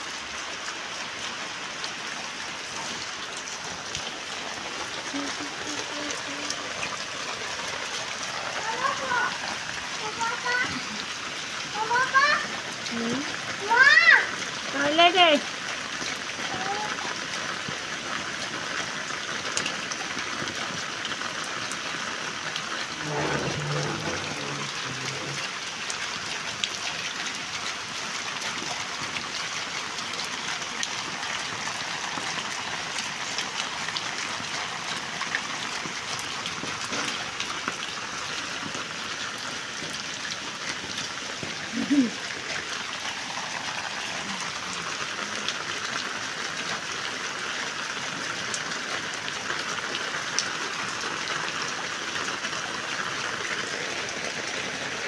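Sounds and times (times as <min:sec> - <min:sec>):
heavy rain on water: 0:00.0 - 0:55.0
short loud sound: 0:23.0 - 0:25.3
low rumble: 0:23.0 - 0:25.4.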